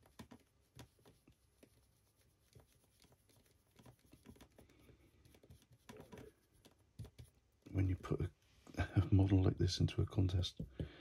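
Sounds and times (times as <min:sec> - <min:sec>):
small taps and scratches: 0:00.0 - 0:08.8.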